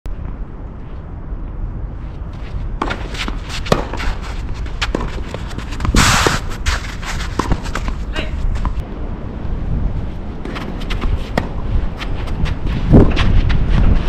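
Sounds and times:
steady low rumble: 0.0s - 14.0s
footsteps on court: 2.3s - 8.8s, 10.4s - 14.0s
racket hitting ball: 2.8s - 8.8s.

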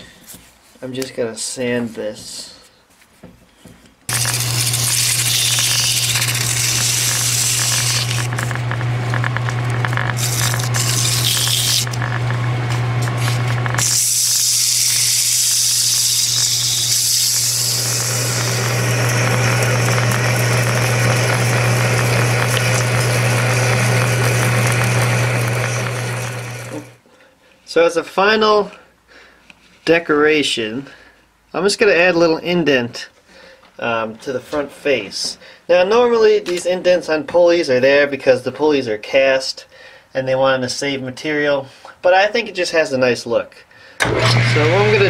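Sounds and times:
metal lathe humming: 4.1s - 27.0s, 44.0s - 45.0s
sanding scrape on spinning metal: 4.2s - 8.3s.

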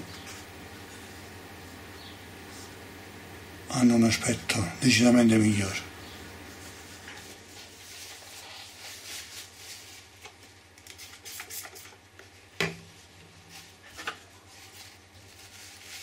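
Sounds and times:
steady low hum: 0.0s - 16.0s
paper towel rubbing on plastic: 6.4s - 10.2s, 13.5s - 16.0s.

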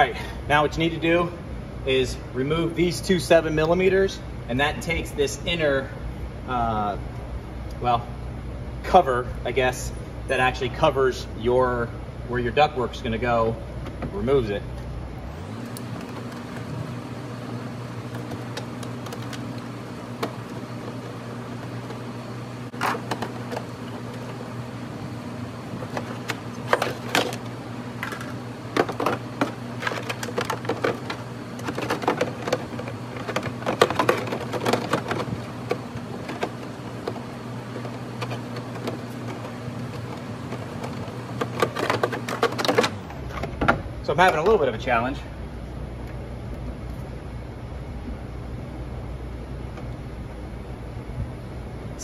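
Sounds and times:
steady low hum: 0.0s - 52.0s
plastic parts clicking and scraping: 18.1s - 22.0s, 22.7s - 24.4s, 25.7s - 43.6s.

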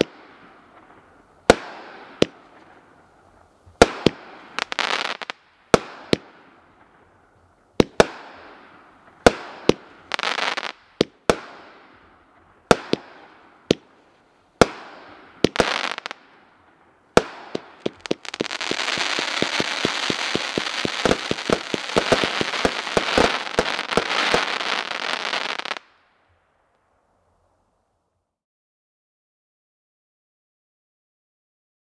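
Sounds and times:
firework crackling: 0.0s - 7.1s, 7.7s - 13.9s, 14.6s - 16.4s, 17.1s - 25.9s
firework reports: 17.2s - 25.8s.

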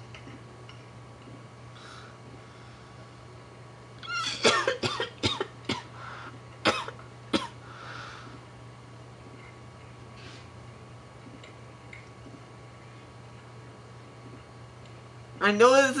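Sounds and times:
man coughing into cloth: 4.3s - 5.9s, 6.6s - 7.6s.

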